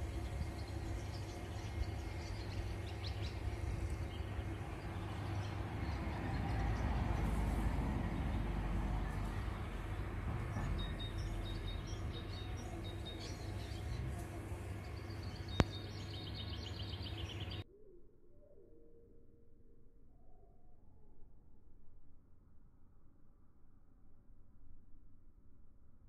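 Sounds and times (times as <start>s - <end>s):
low steady rumble: 0.0s - 17.6s
small birds chirping and trilling: 0.0s - 17.6s.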